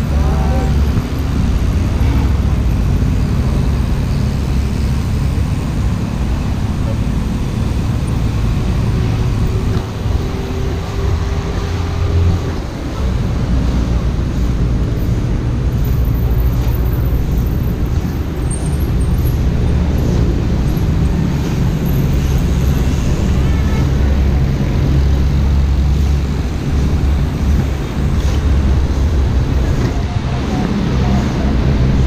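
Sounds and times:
wind buffeting microphone: 19.4s - 32.0s.

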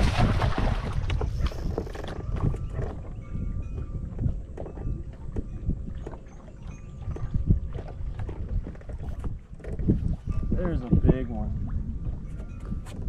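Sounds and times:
wind rumbling on microphone: 0.0s - 13.0s
knocks and clicks of fishing gear: 0.6s - 6.3s, 7.1s - 10.1s, 12.3s - 13.0s.

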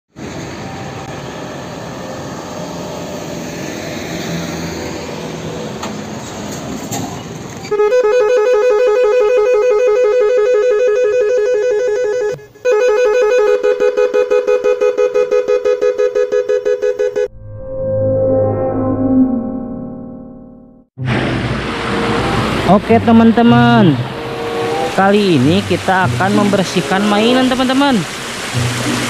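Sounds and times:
pulsing electronic tone: 15.8s - 21.1s.

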